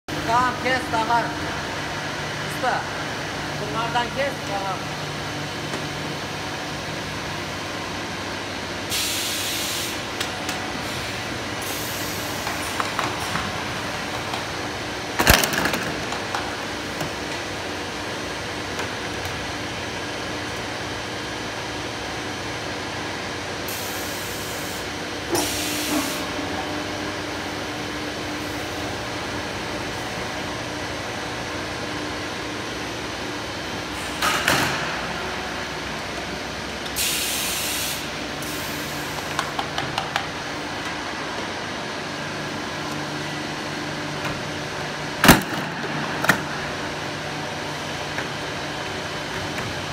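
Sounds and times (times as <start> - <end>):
factory machinery noise: 0.1 - 49.9
steady motor hum: 0.1 - 49.9
compressed air hiss: 37.0 - 39.0.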